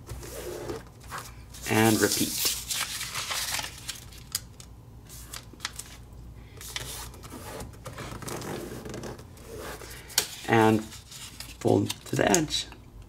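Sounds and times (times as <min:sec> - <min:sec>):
paper being folded and creased: 0:00.3 - 0:04.5, 0:05.1 - 0:06.0, 0:06.6 - 0:12.2.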